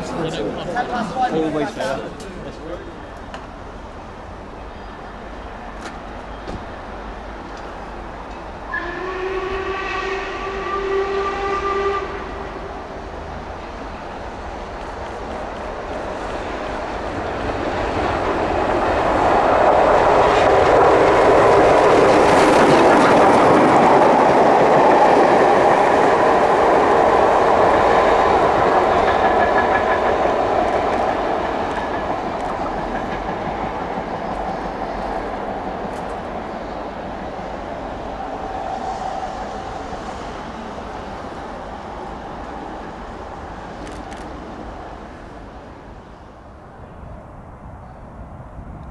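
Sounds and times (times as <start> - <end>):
steam locomotive passing: 0.0 - 48.9.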